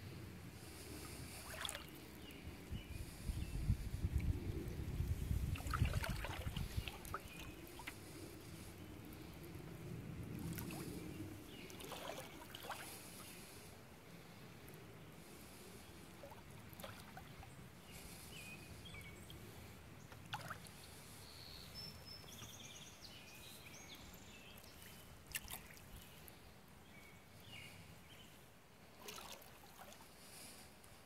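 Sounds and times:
water dripping off paddle: 5.6s - 8.0s, 11.7s - 12.9s, 25.3s - 25.8s.

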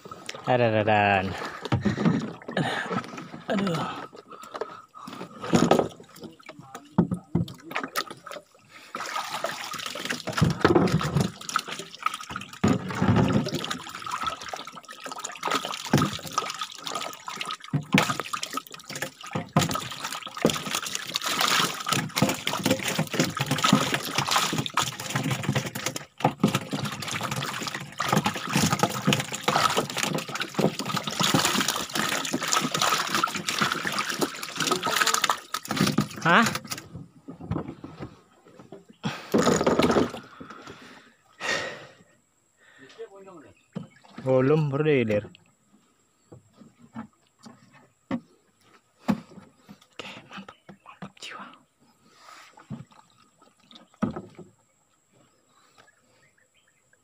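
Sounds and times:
water splashing and sloshing: 0.0s - 41.2s, 43.1s - 57.0s
fish thrashing in shallow water: 1.3s - 37.5s.

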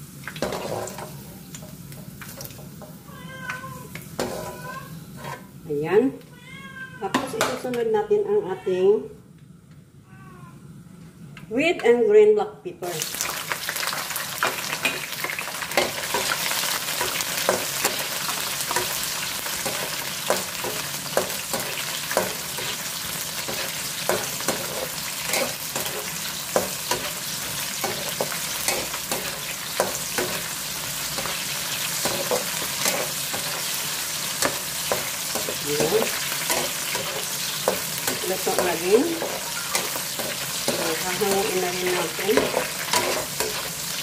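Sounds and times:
peppers sizzling in hot oil: 0.0s - 6.0s, 12.8s - 44.0s
spatula tapping and scraping pan: 17.0s - 19.0s, 19.6s - 22.8s, 23.4s - 30.5s, 32.0s - 33.8s, 34.4s - 43.7s.

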